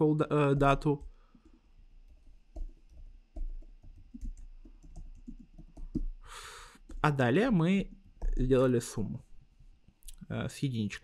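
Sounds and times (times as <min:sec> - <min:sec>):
typing on computer keyboard: 0:00.5 - 0:06.2.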